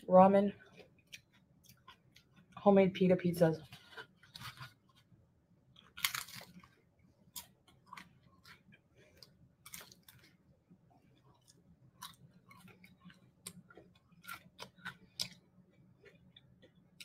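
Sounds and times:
woman chewing: 0.6s - 2.6s, 5.7s - 17.0s.

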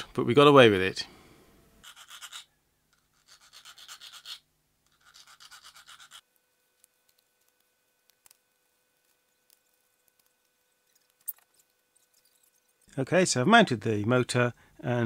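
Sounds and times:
hand file scraping: 1.8s - 6.3s.

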